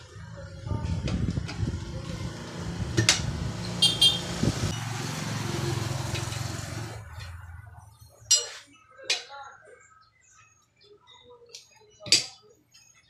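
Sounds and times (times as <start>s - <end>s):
vehicle engine rumbling: 0.0s - 8.3s.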